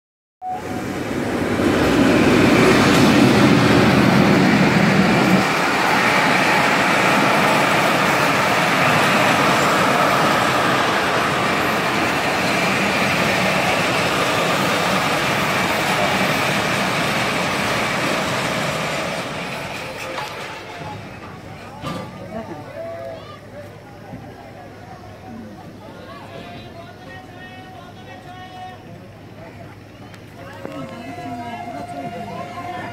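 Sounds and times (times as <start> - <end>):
locomotive engine passing: 0.4 - 22.3
train coaches rumbling on rails: 0.4 - 32.9.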